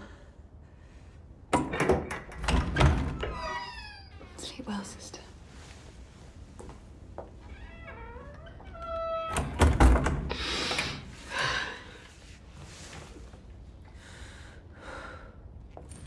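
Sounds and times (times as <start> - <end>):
wooden door creaking: 1.6 - 4.6, 7.4 - 11.0.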